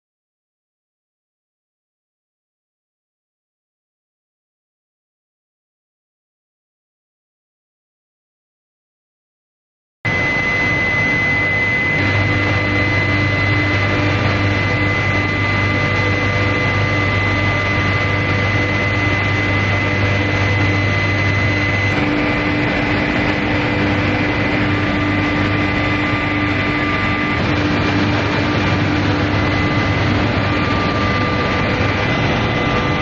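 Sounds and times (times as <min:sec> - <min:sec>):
high-pitched whine: 0:10.1 - 0:33.0
machinery drone: 0:10.1 - 0:33.0.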